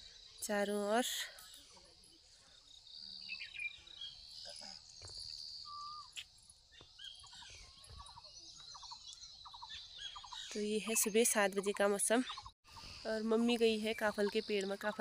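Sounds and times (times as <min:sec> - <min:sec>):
insects buzzing: 0:00.0 - 0:11.4
birds chirping and whistling: 0:03.0 - 0:13.1.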